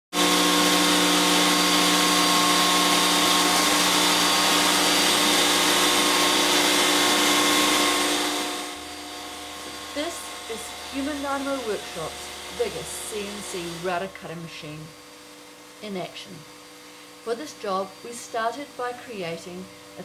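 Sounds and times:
router spindle whine: 0.2s - 20.0s
dust extraction hiss: 0.4s - 16.0s.

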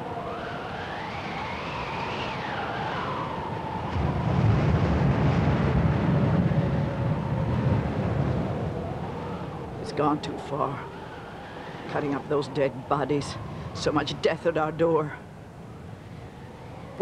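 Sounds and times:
eerie high wail: 6.6s - 14.1s.

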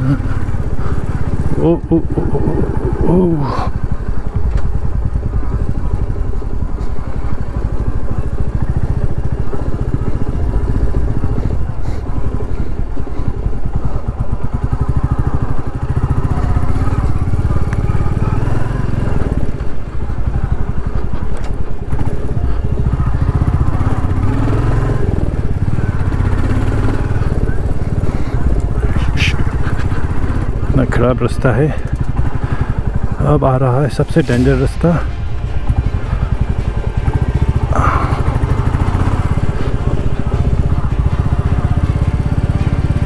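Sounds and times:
motorcycle engine running: 0.0s - 43.0s.

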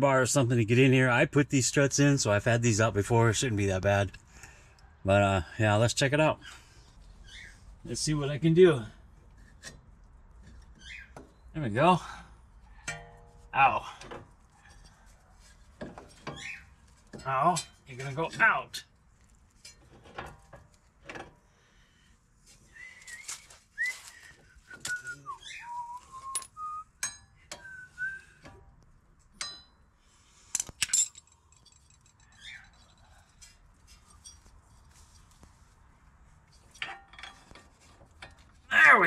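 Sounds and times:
metal tools clinking: 12.8s - 14.0s, 14.6s - 18.5s, 26.2s - 27.4s, 30.5s - 35.4s, 36.4s - 38.5s
person whistling: 22.7s - 26.9s, 27.5s - 28.4s.

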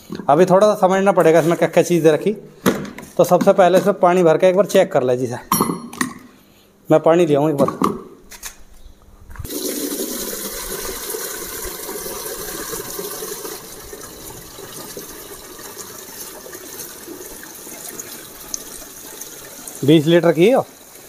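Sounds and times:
water pouring into water: 9.5s - 21.0s.

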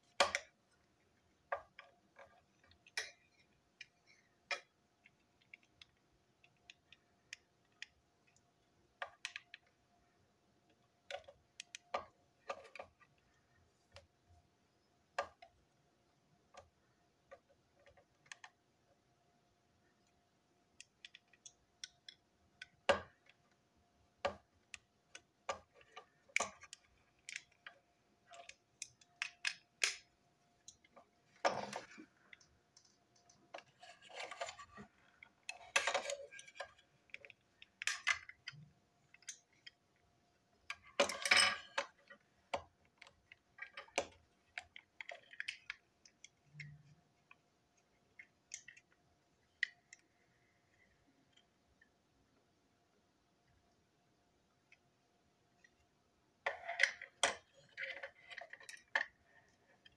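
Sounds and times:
clicks and taps of toy parts: 0.1s - 0.6s, 1.5s - 9.7s, 10.7s - 13.1s, 20.8s - 23.5s, 24.2s - 31.0s, 31.6s - 39.8s, 40.7s - 47.4s, 48.1s - 50.1s.

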